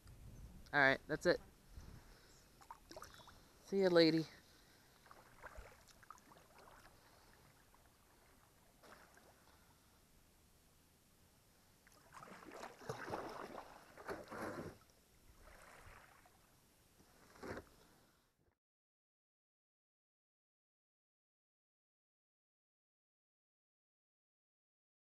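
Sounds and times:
kayak paddle splashing: 0:02.5 - 0:09.9, 0:11.8 - 0:17.8.

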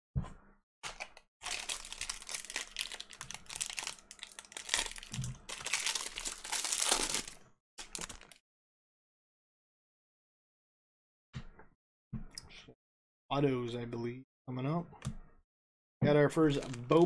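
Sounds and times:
foil wrapper tearing and crinkling: 0:00.9 - 0:08.4.

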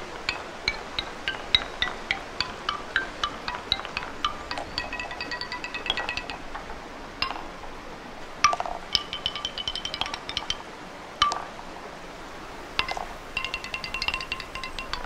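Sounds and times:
wooden xylophone notes: 0:00.0 - 0:12.0, 0:12.8 - 0:15.0
wooden ball knock: 0:00.3 - 0:07.6, 0:08.4 - 0:10.6, 0:11.2 - 0:11.6, 0:12.8 - 0:15.0.

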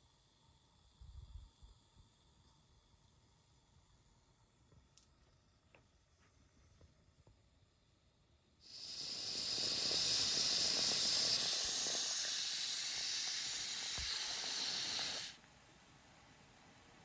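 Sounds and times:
steam hissing: 0:08.6 - 0:17.0.

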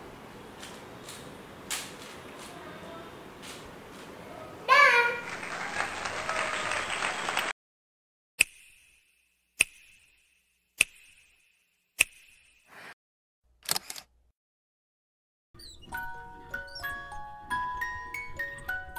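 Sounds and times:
applause: 0:05.1 - 0:07.6
camera shutter clicks: 0:13.6 - 0:14.1.

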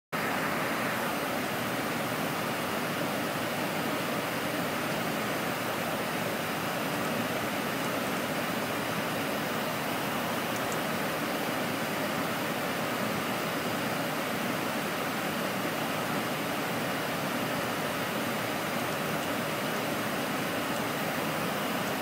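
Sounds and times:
airplane cockpit airflow hiss: 0:00.2 - 0:02.4.

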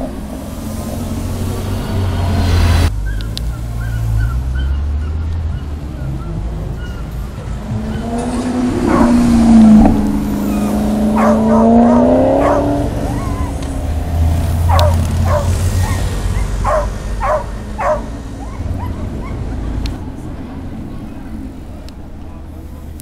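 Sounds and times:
car engine driving past: 0:00.0 - 0:21.5
dog barking: 0:08.8 - 0:09.2, 0:11.1 - 0:13.6, 0:14.7 - 0:19.5.

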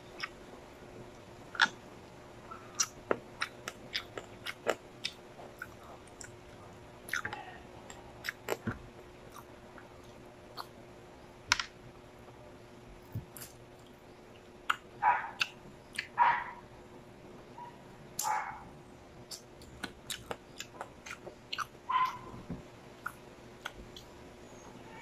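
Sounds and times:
faint steady hum: 0:00.0 - 0:25.0
close chewing with mouth smacks: 0:00.1 - 0:00.4, 0:02.7 - 0:06.4, 0:07.0 - 0:08.7, 0:09.3 - 0:10.8, 0:13.1 - 0:16.2, 0:19.3 - 0:22.3, 0:23.0 - 0:24.1.

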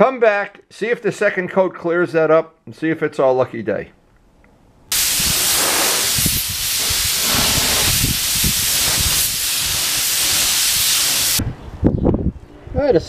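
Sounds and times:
spray gun hissing: 0:04.9 - 0:11.4.

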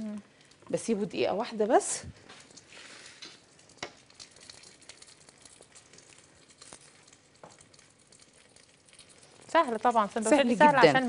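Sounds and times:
crepe sizzling in a pan: 0:00.0 - 0:11.0.

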